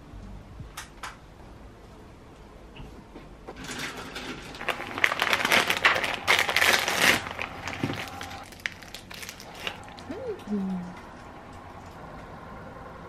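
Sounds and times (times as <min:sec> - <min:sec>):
plastic packaging crinkling: 0:03.6 - 0:10.1.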